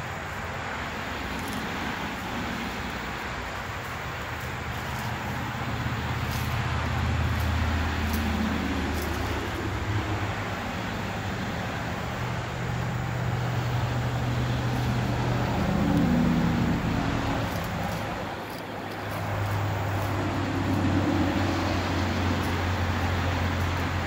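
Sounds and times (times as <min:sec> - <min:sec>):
motor vehicle engine hum: 0:00.0 - 0:24.0.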